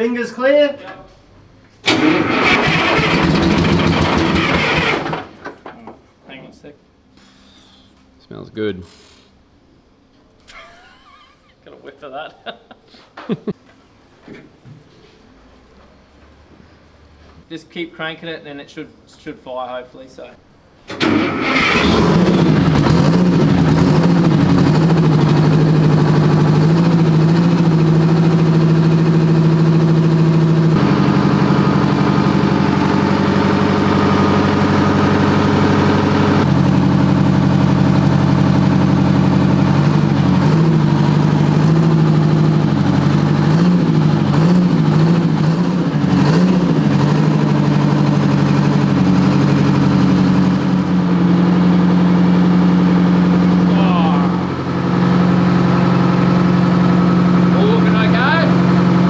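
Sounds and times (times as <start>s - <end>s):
diesel engine running: 1.8s - 5.7s, 21.0s - 59.0s.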